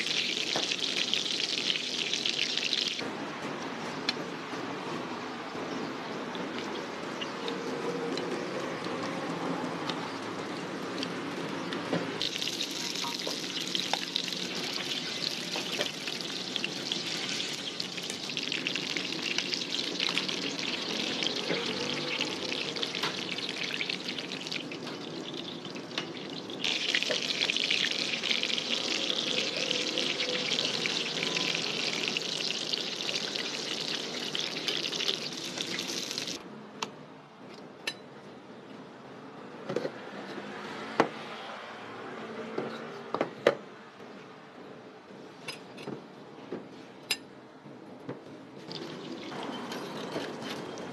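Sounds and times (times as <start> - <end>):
oil sizzling: 0.0 - 3.0, 12.2 - 36.4, 48.7 - 50.9.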